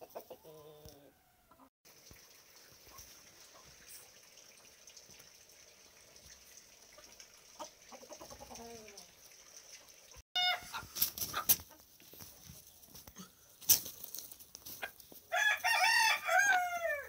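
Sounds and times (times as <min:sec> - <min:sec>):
chicken call: 0:10.4 - 0:10.9
chicken squawk: 0:10.4 - 0:11.5
wing-flapping and scuffling: 0:10.8 - 0:15.3.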